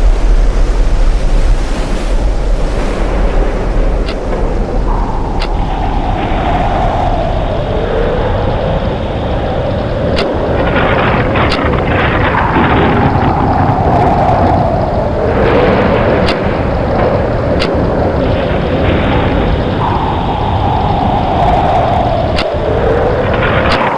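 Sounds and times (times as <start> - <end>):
howling tornado wind: 0.0 - 23.9
sharp ticks: 4.0 - 6.0, 10.1 - 11.9, 16.2 - 16.5, 17.6 - 18.0.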